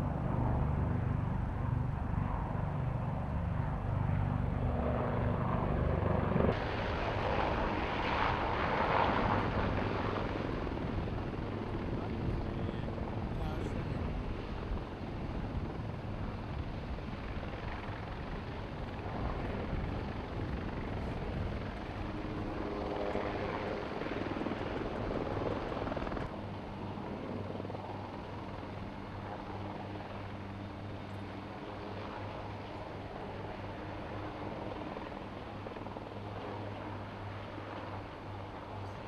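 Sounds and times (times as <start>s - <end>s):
helicopter rotor and engine: 0.0s - 39.0s.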